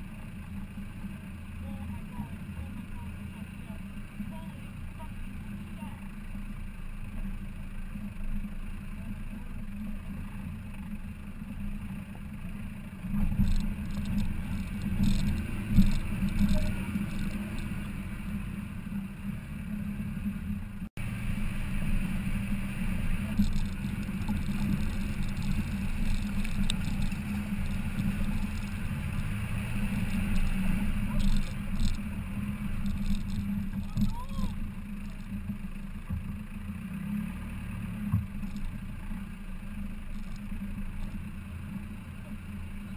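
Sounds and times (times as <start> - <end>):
low engine and road rumble: 0.0 - 42.9
vehicle bumps and knocks: 13.0 - 18.0, 23.2 - 29.5, 30.1 - 36.5, 38.0 - 38.8.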